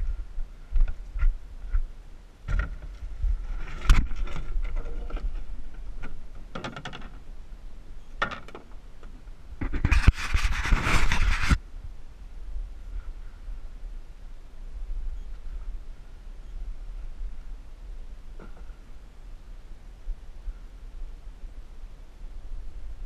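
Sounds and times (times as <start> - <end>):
hull scraping over rock: 2.5 - 6.3.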